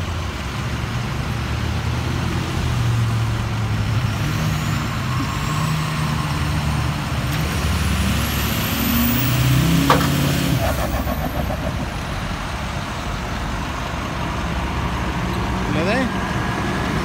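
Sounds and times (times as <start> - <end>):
passing traffic: 0.0 - 17.0
tow truck engine under load: 0.0 - 17.0
brief rattle: 9.8 - 11.2.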